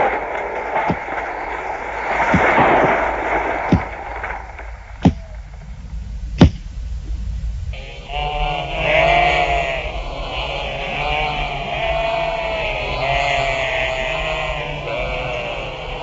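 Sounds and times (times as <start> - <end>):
sharp bangs: 0.0 - 7.0
rushing noise: 0.0 - 16.0.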